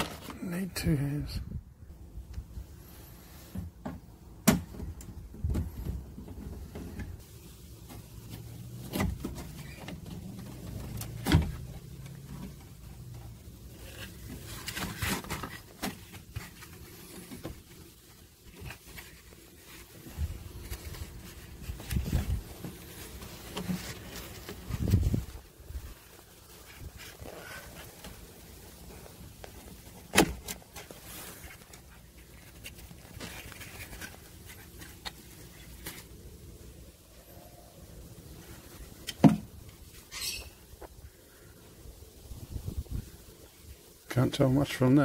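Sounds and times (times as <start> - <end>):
rustling: 2.2 - 45.0.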